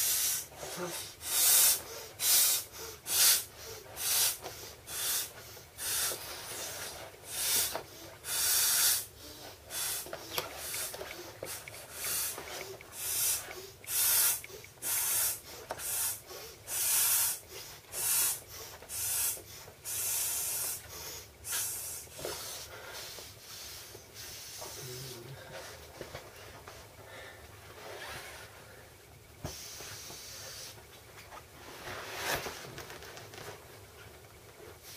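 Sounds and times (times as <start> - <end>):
breathy puffs inflating swim ring: 0.0 - 25.8, 29.4 - 30.8.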